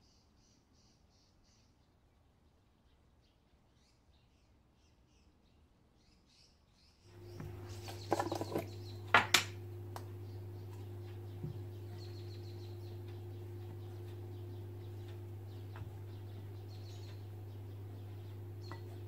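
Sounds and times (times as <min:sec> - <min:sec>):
faint bird chirps: 0:00.0 - 0:19.0
steady low hum: 0:07.1 - 0:19.0.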